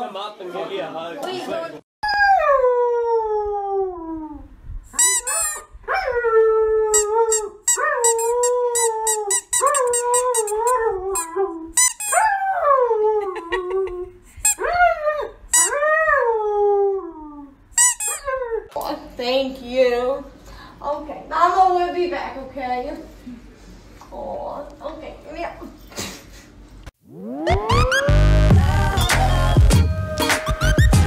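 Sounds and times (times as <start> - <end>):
rubber squeaky toy squeaking: 5.0 - 5.7, 6.9 - 12.2, 15.5 - 15.7, 17.8 - 18.3.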